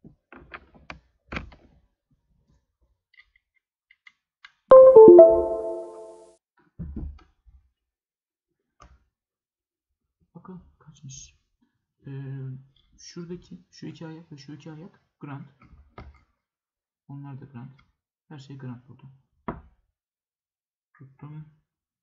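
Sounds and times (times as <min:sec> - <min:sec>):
two-note computer chime: 0:04.7 - 0:06.2.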